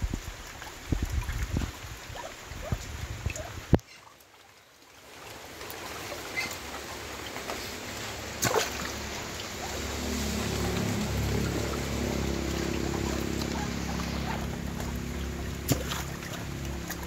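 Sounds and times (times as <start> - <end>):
ducks splashing in water: 0.0 - 17.0
steady low hum: 6.7 - 17.0.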